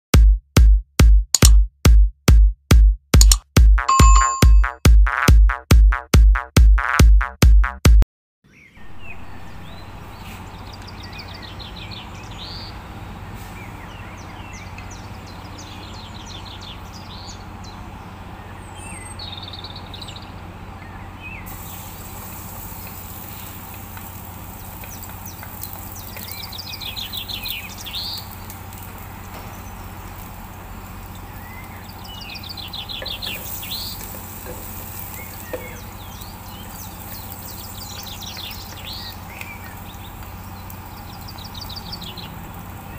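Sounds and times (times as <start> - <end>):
birds chirping: 3.8 - 5.2, 8.5 - 42.9
garlic sizzling in oil: 21.5 - 42.9.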